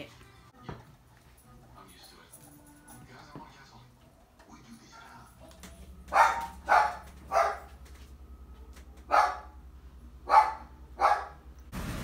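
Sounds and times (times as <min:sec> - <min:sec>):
low steady hum: 0:03.8 - 0:11.8
dog barking: 0:06.1 - 0:07.8, 0:08.9 - 0:09.6, 0:10.2 - 0:11.4.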